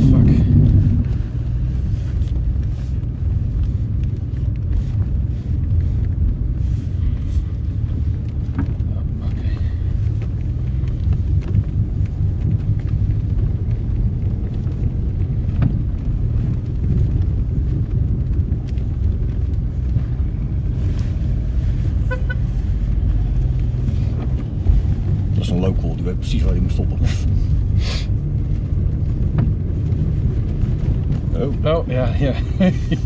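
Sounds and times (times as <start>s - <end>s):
car rumbling on snow chains: 0.0s - 33.0s.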